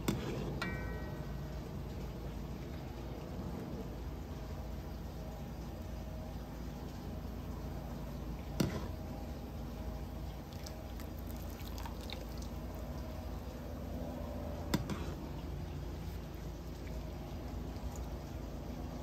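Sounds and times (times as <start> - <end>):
pot simmering on stove: 0.0 - 19.0.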